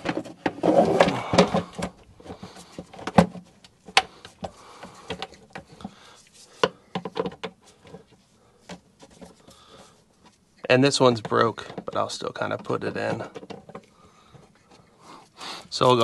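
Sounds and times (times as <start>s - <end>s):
plastic clicks and knocks: 0.0s - 6.0s, 6.6s - 8.0s, 11.1s - 14.5s
rustling: 0.0s - 16.0s.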